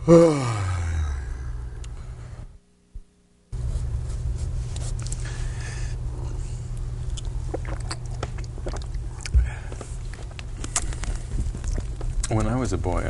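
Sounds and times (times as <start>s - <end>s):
low hum: 0.0s - 13.0s
man sipping and swallowing: 7.0s - 12.2s.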